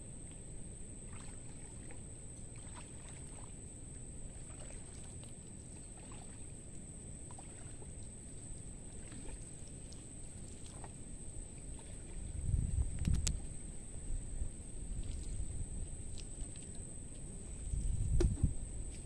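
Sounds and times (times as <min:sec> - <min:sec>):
low steady rumble: 0:00.0 - 0:19.0
water sloshing around wading legs: 0:00.2 - 0:18.1
faint ticks: 0:12.9 - 0:13.5.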